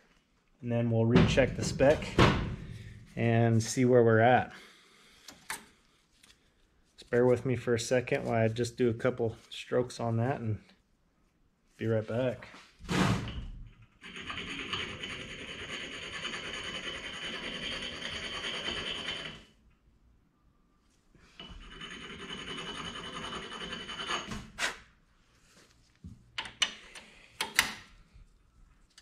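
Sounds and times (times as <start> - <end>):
metal scraping on grinding stone: 14.0 - 19.4, 21.4 - 24.3.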